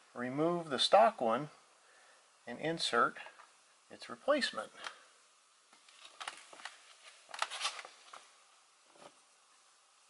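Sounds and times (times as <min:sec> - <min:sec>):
soft handling sounds: 0:05.7 - 0:09.3.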